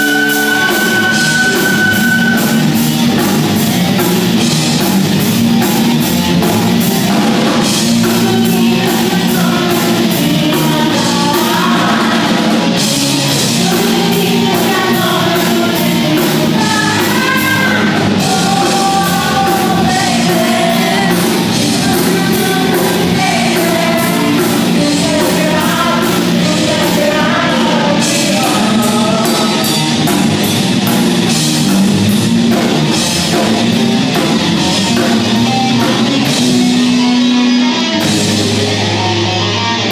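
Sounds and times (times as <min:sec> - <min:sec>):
live rock band playing: 0:00.0 - 0:39.9
woman singing: 0:08.0 - 0:12.5, 0:13.4 - 0:29.8.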